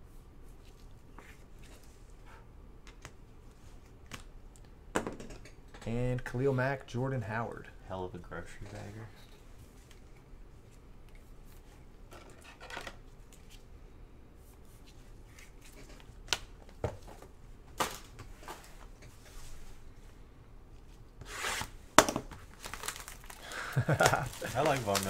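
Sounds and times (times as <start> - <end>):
cards and cardboard rustling: 22.3 - 25.0.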